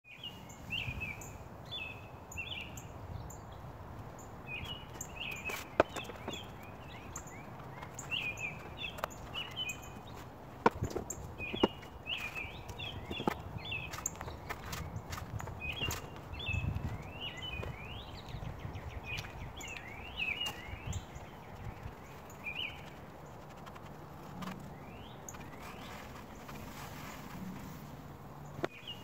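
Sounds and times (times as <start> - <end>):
small birds chirping: 0.0 - 29.0.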